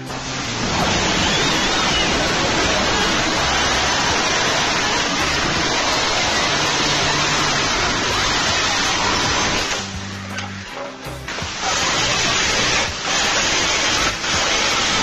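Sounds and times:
angle grinder cutting steel: 0:00.0 - 0:15.0.

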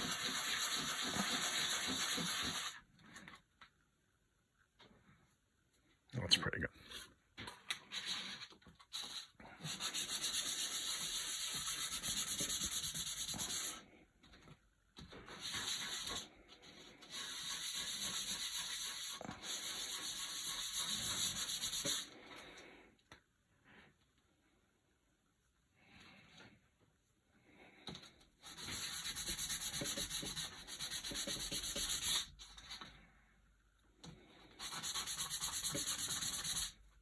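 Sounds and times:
plastic rubbed on sandpaper: 0:00.0 - 0:02.8, 0:07.8 - 0:13.8, 0:15.2 - 0:22.2, 0:28.4 - 0:32.8, 0:34.5 - 0:36.8.

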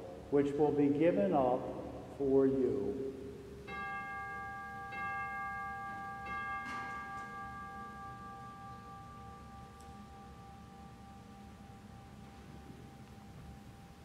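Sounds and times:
altar bell ringing: 0:03.6 - 0:14.0.

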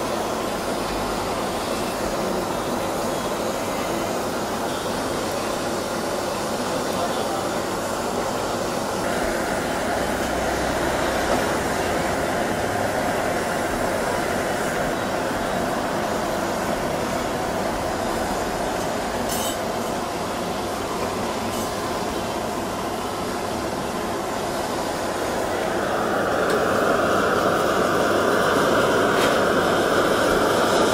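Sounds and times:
gas torch flame hissing: 0:00.0 - 0:30.9.

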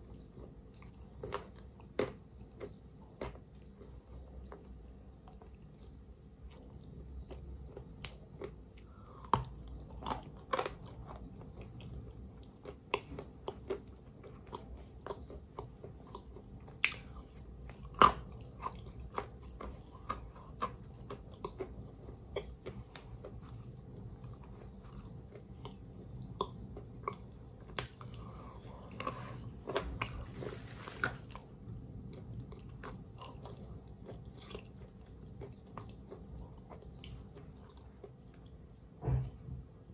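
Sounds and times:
chalk crunching while chewed: 0:00.0 - 0:38.8.

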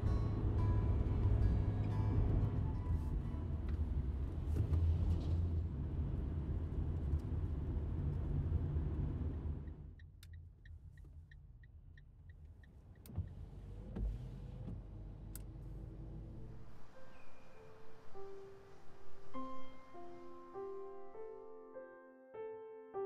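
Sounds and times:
car road and engine rumble: 0:00.0 - 0:21.0.

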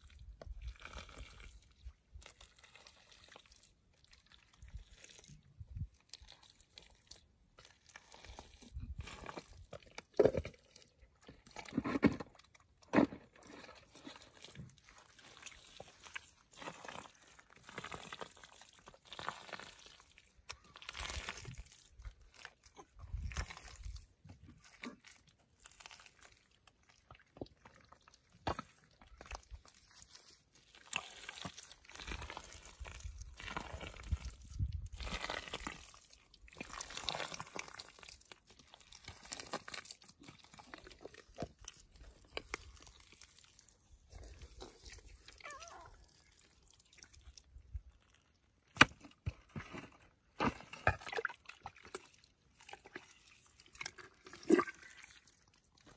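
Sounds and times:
hands squelching in wet mud: 0:13.4 - 0:48.9, 0:51.0 - 0:55.9.

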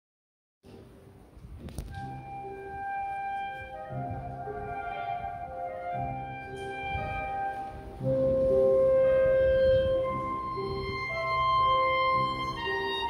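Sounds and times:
slow melody of held notes: 0:01.7 - 0:13.0.

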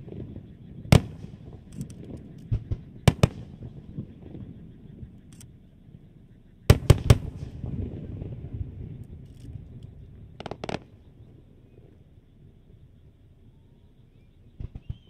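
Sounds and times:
fireworks bangs: 0:00.0 - 0:05.1, 0:06.7 - 0:11.3
fireworks crackling pops: 0:00.0 - 0:05.4, 0:06.7 - 0:12.0, 0:14.6 - 0:15.0.

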